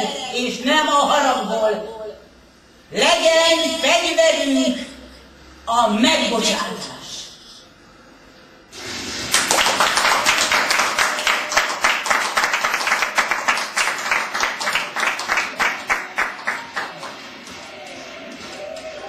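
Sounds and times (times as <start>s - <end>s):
hands clapping in unison: 9.3s - 19.0s.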